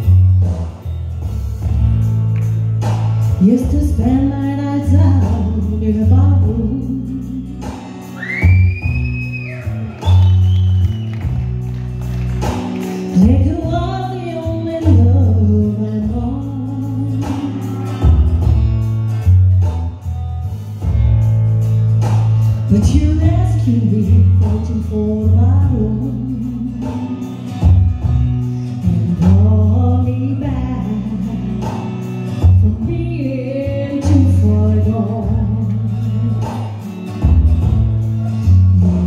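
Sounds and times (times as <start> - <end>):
instrumental backing: 0.0 - 39.0
woman singing country ballad: 3.3 - 10.4, 13.0 - 18.5, 22.7 - 39.0.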